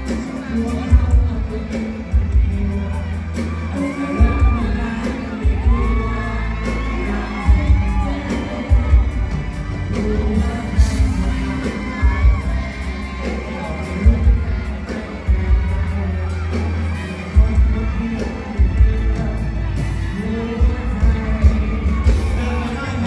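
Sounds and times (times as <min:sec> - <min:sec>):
crowd cheering: 0:00.0 - 0:23.0
heavy bass line: 0:00.0 - 0:23.0
live pop music: 0:00.0 - 0:23.0
person singing: 0:00.0 - 0:23.0.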